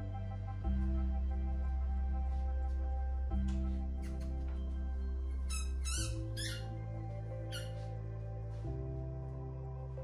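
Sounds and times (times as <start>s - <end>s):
music with held low notes: 0.0s - 10.0s
short high squeaks: 5.5s - 6.7s.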